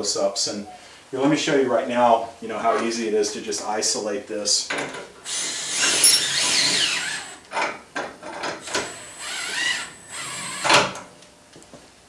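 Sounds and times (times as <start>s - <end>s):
cordless drill whining: 5.2s - 7.5s, 8.6s - 11.0s.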